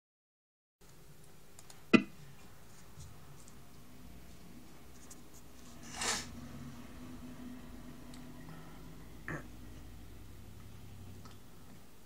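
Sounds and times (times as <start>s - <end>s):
faint room hiss: 0.8s - 12.0s.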